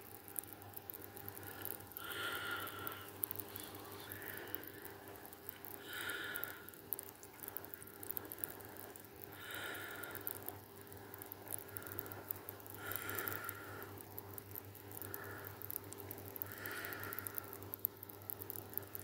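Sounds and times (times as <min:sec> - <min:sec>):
faint steady hum: 0:00.0 - 0:19.0
person breathing: 0:01.3 - 0:06.8, 0:07.8 - 0:10.5, 0:11.6 - 0:14.0, 0:15.0 - 0:15.8, 0:16.4 - 0:17.7.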